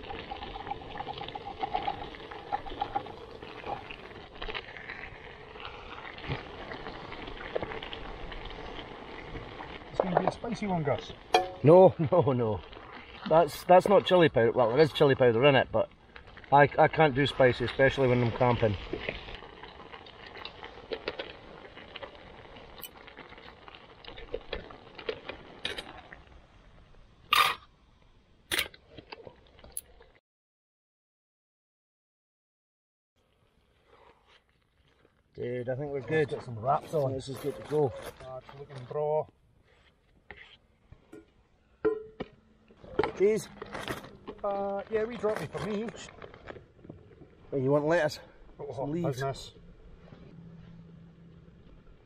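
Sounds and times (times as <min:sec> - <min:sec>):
chilli bubbling and popping in pot: 0:00.0 - 0:27.8.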